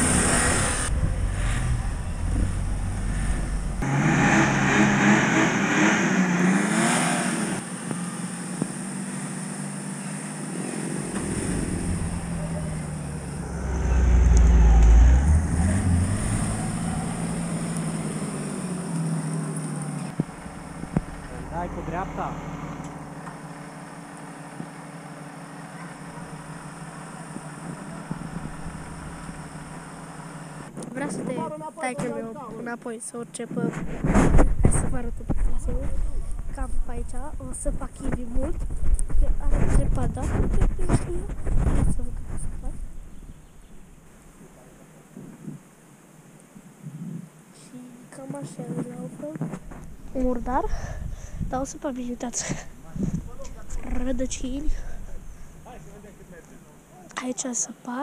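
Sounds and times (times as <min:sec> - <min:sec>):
off-road engines revving: 0:00.0 - 0:32.2, 0:47.6 - 0:57.9.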